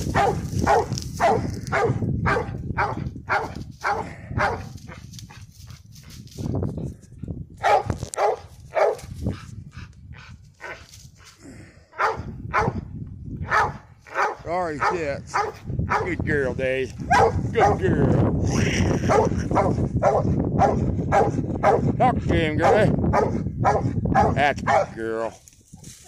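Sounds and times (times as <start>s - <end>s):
dog barking: 0.1s - 4.8s, 7.6s - 9.1s, 12.0s - 12.8s, 13.4s - 16.2s, 17.1s - 17.8s, 19.1s - 21.9s, 22.6s - 25.0s.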